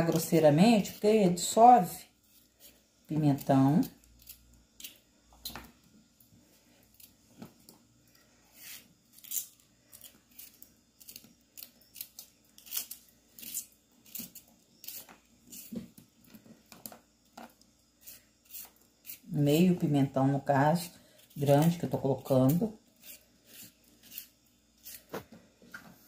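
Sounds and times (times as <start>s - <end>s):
knife slicing bell pepper: 20.8s - 25.3s.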